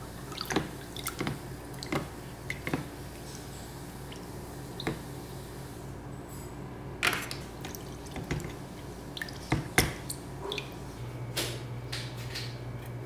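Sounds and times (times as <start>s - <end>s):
water dripping and splashing in tub: 0.0s - 3.4s, 4.0s - 5.1s, 7.2s - 11.0s.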